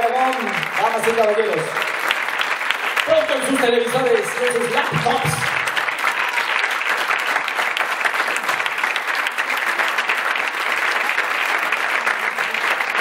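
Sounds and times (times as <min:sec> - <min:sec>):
audience applause: 0:00.0 - 0:13.0.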